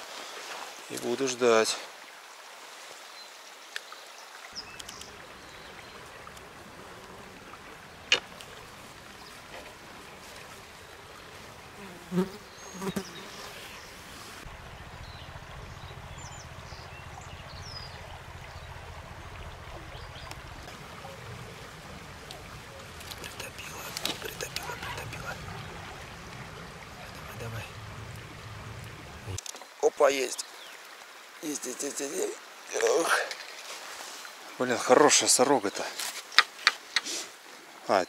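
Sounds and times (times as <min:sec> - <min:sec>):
stream water flowing: 0:00.0 - 0:38.0
insect buzzing: 0:04.6 - 0:18.8.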